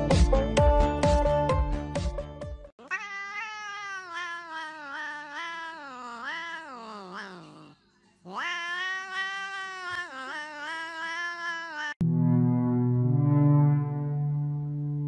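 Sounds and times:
cat yowling: 0:02.8 - 0:12.0.

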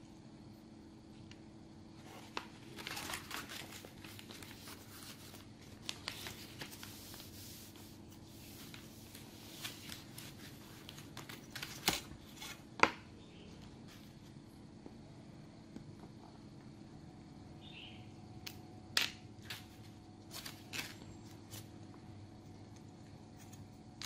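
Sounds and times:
faint steady hum: 0:00.0 - 0:24.0
wrapping paper rustling: 0:02.0 - 0:12.7.

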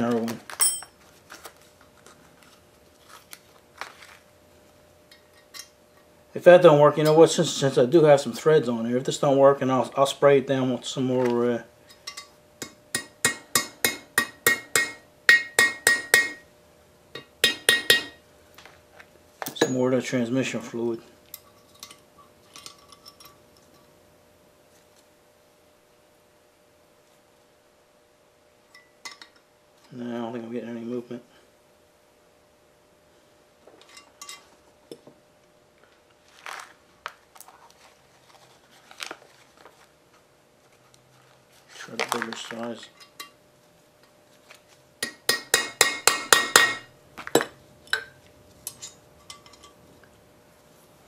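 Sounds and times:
metal hand tools clinking: 0:00.5 - 0:01.0
hammer tapping on metal: 0:12.1 - 0:16.4, 0:17.2 - 0:18.2, 0:45.0 - 0:48.1.

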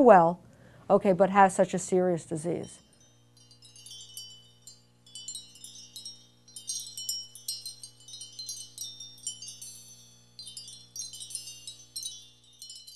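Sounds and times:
wind chimes tinkling: 0:02.8 - 0:12.9.

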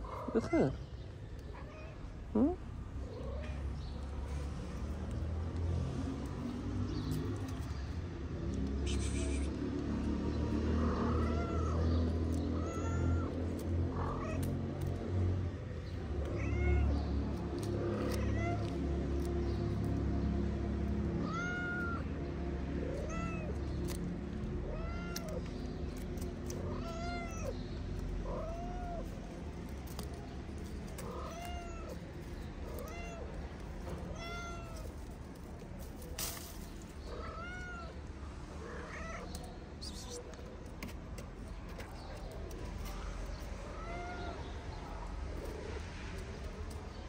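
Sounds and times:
kittens meowing: 0:08.8 - 0:09.6, 0:10.8 - 0:15.0, 0:16.1 - 0:18.8, 0:21.1 - 0:22.2, 0:22.8 - 0:35.1, 0:37.0 - 0:40.5, 0:42.1 - 0:45.5.

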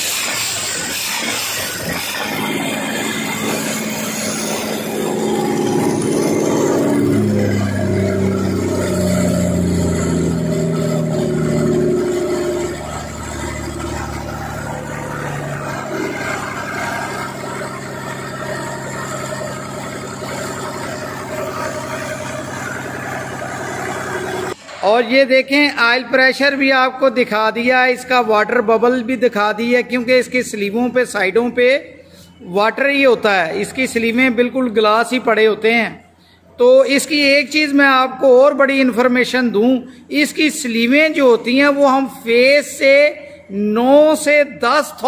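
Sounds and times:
diesel engine running: 0:00.0 - 0:24.6.

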